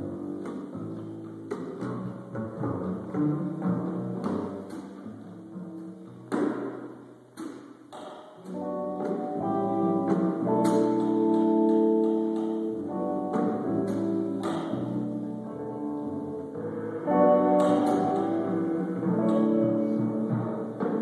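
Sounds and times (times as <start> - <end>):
upright double bass: 0.0 - 7.6, 8.4 - 21.0
electric guitar chords: 8.6 - 20.6.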